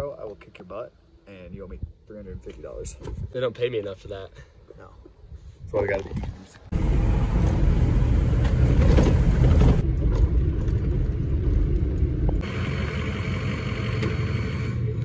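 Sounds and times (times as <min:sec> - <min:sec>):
truck engine and tyre rumble: 0:05.8 - 0:15.0
parked truck engine running: 0:06.7 - 0:15.0.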